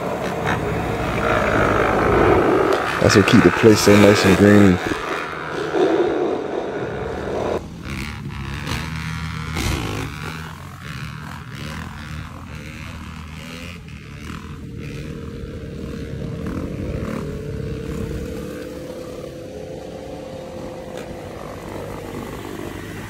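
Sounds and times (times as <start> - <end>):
steady whine: 0.0 - 8.3
dirt bike engines running: 0.0 - 23.0.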